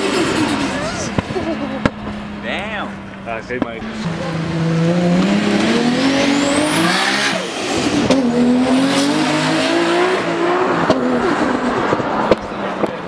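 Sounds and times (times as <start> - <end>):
car engine revving hard: 3.8 - 13.0.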